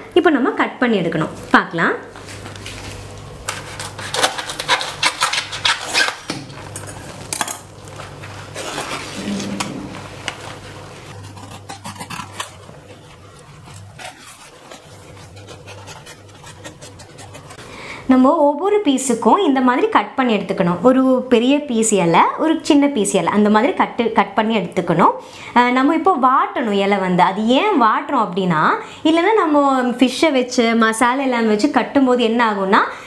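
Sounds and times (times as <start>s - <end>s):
steady low hum: 0.0s - 19.4s
knife scraping cutting leaf: 3.5s - 6.3s, 8.4s - 10.0s, 11.1s - 17.6s.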